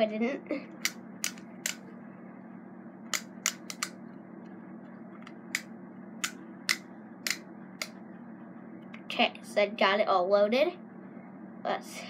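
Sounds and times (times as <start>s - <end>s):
steady low hum: 0.0s - 12.0s
sharp plastic clicks: 0.8s - 1.8s, 3.1s - 4.0s, 5.2s - 8.0s.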